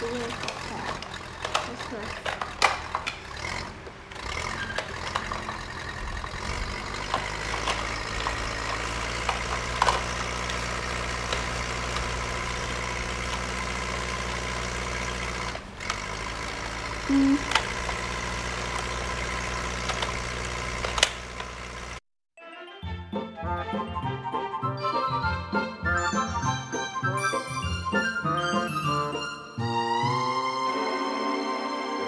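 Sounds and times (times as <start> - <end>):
toy electronic engine sound: 0.0 - 22.0.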